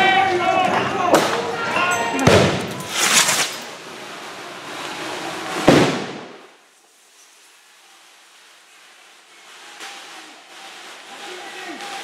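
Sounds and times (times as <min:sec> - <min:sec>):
faint street noise: 0:00.0 - 0:12.0
explosive bangs: 0:02.2 - 0:03.8, 0:05.5 - 0:06.5.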